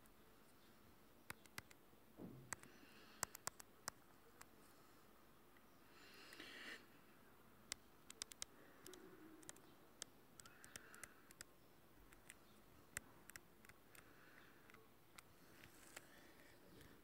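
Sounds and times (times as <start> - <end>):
faint sharp clicks: 2.5 - 4.5, 7.7 - 11.5.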